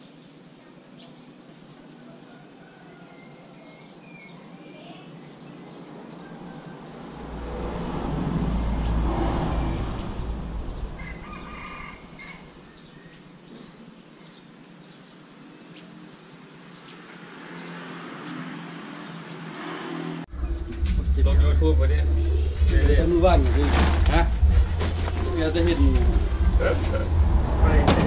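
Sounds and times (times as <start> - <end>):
rooster crowing: 2.0 - 3.9, 6.1 - 13.0
low rumble: 7.0 - 12.6, 20.3 - 28.0
small birds chirping: 8.6 - 19.8.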